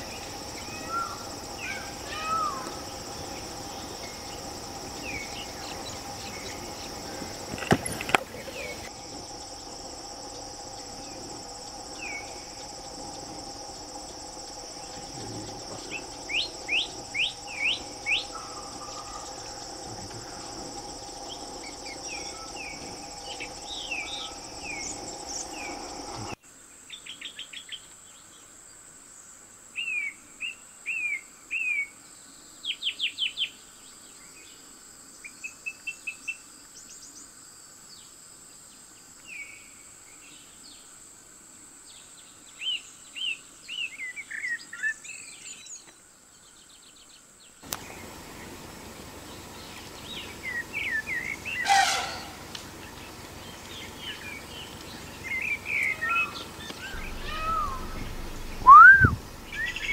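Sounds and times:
insect drone: 0:00.0 - 0:59.9
bird whistling quick notes: 0:56.8 - 0:59.9.

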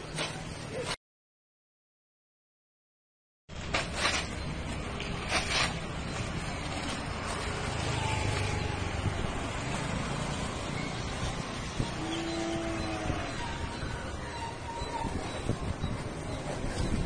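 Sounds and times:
traffic noise: 0:03.5 - 0:17.0
motor vehicle passing: 0:04.7 - 0:14.2.

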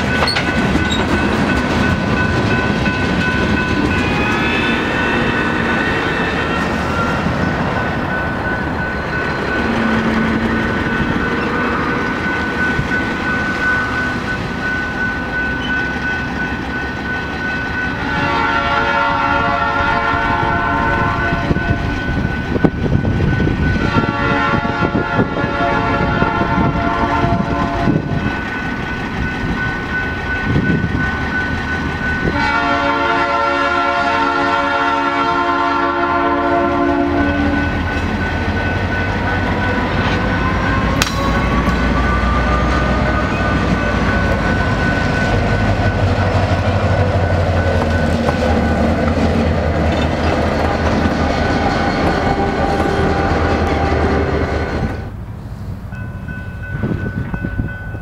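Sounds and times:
crossing bell ringing: 0:00.0 - 0:55.2, 0:55.8 - 0:58.0
train wheels on rails: 0:00.0 - 0:58.0
wheel squeal: 0:00.1 - 0:01.2
locomotive horn blasts: 0:04.1 - 0:06.8, 0:17.9 - 0:21.9, 0:23.8 - 0:28.2, 0:32.2 - 0:37.8, 0:39.2 - 0:44.0
locomotive engine rumble: 0:25.9 - 0:58.0.

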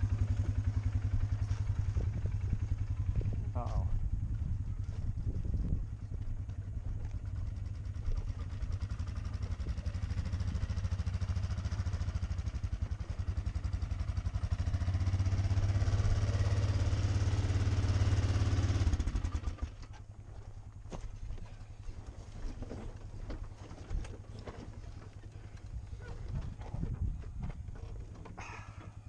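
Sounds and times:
atv engine running: 0:00.0 - 0:29.0.

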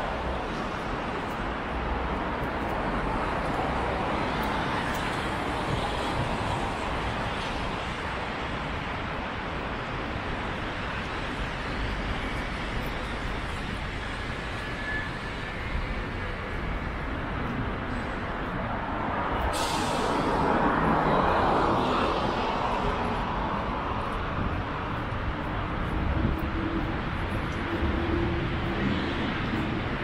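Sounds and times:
rumble of passing vehicles: 0:00.0 - 0:30.0
short hiss: 0:19.5 - 0:20.2.

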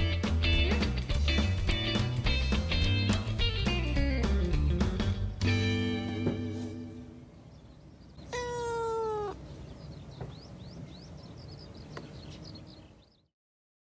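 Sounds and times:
cat meowing: 0:08.2 - 0:09.4.

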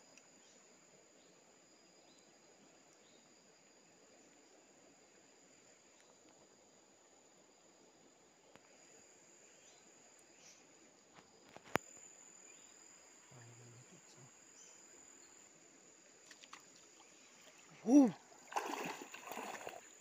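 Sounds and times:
insects droning: 0:00.0 - 0:20.0.

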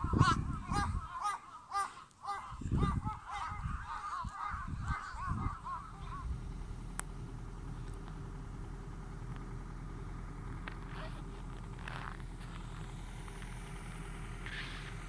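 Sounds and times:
flock of birds calling: 0:00.0 - 0:07.4
vehicle engine humming: 0:01.8 - 0:15.0.

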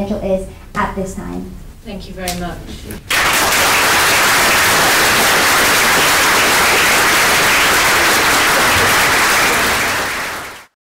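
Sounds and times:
audience applauding: 0:03.1 - 0:10.8.

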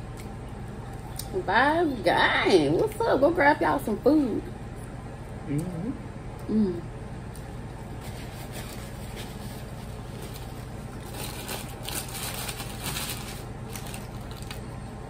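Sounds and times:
steady low hum: 0:00.0 - 0:15.0
paper wrappers crinkling: 0:07.9 - 0:14.9.

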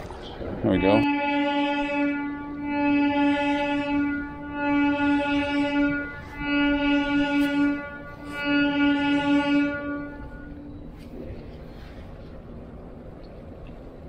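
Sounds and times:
horn long blasts: 0:00.5 - 0:12.1.

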